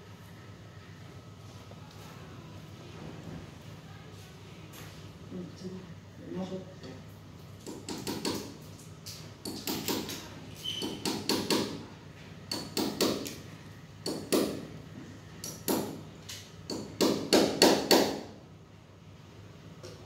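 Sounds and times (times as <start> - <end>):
hammer tapping a nail: 7.6 - 8.5, 9.4 - 10.2, 10.8 - 11.8, 12.5 - 13.4, 14.0 - 14.7, 15.4 - 16.0, 16.7 - 18.2.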